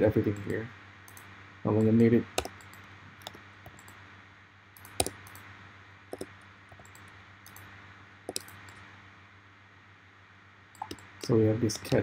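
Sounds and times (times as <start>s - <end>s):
faint steady hum: 0.0s - 12.0s
keyboard and mouse clicks: 1.1s - 4.0s, 4.8s - 5.5s, 6.1s - 7.7s, 8.3s - 8.8s, 10.7s - 11.3s.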